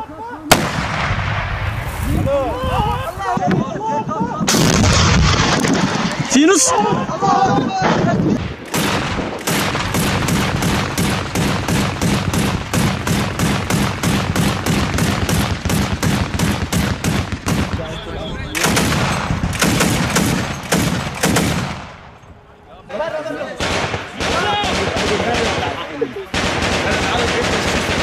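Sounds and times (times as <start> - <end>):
automatic gunfire: 0.5 - 1.3, 8.4 - 18.0, 18.6 - 22.0, 23.6 - 28.0.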